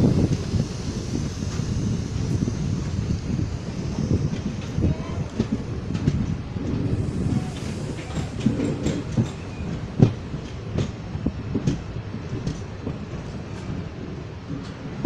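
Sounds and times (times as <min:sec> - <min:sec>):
train wheels rumbling on track: 0:00.0 - 0:15.0
clacks over rail joints: 0:01.5 - 0:15.0.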